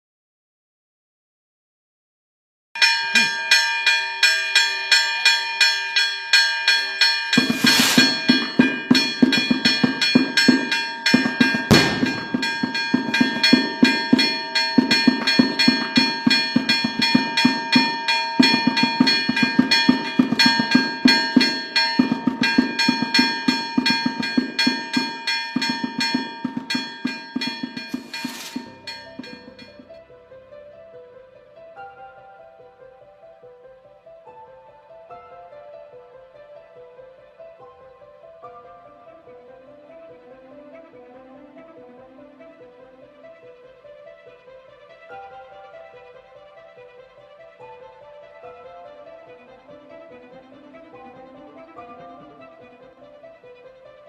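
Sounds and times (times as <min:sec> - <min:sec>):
deeper bell ringing: 0:02.8 - 0:29.9
church bells pealing: 0:02.8 - 0:30.0.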